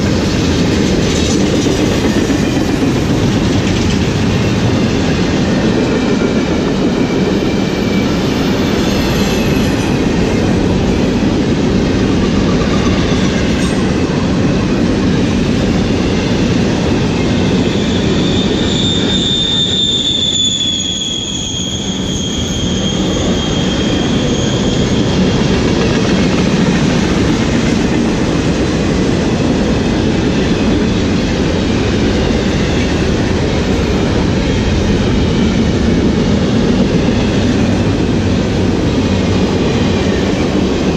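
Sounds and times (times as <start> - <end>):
train wheels rumbling on rails: 0.0 - 40.9
high wheel squeal: 4.4 - 10.5, 17.2 - 25.9.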